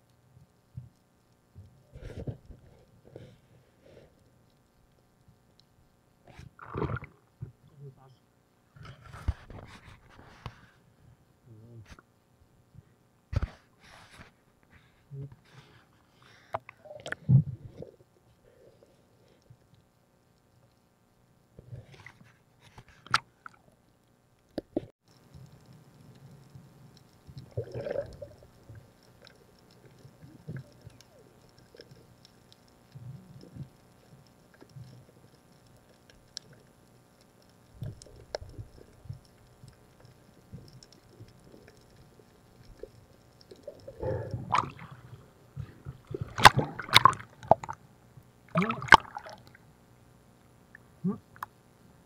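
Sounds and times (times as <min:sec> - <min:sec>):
underwater water movement: 0:06.3 - 0:07.6, 0:13.3 - 0:20.8, 0:21.6 - 0:51.6
gurgling bubbling bursts: 0:06.6 - 0:07.2, 0:27.4 - 0:28.8, 0:43.8 - 0:47.8, 0:48.5 - 0:49.5.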